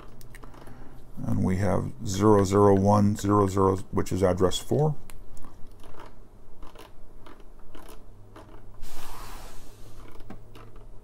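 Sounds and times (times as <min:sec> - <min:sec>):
steady low hum: 0:00.0 - 0:11.0
stylus scraping touchscreen: 0:08.8 - 0:10.8.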